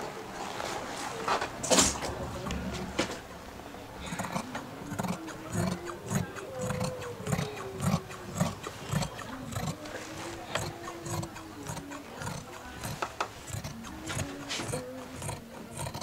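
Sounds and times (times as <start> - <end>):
shears snipping through fabric: 4.9 - 16.0.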